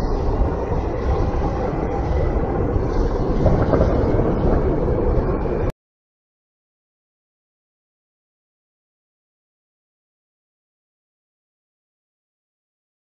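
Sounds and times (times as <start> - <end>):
loud low rumble: 0.0 - 5.7.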